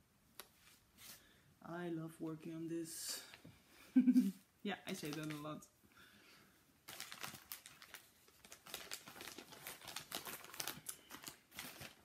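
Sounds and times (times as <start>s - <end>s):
crinkly material rustling: 4.8s - 5.6s, 6.8s - 12.0s.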